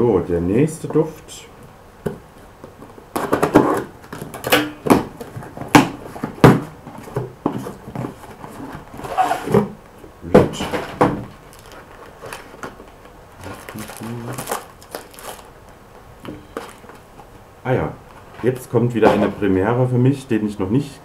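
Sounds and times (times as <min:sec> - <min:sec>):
knocks and thuds on cardboard: 0:02.0 - 0:08.9
cardboard rustling: 0:02.6 - 0:09.8, 0:10.5 - 0:15.6, 0:16.2 - 0:17.1.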